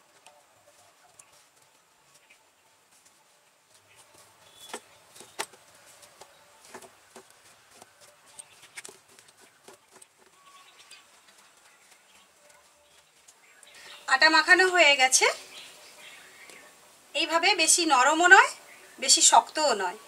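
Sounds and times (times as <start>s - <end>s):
hands kneading dough: 2.9s - 13.3s.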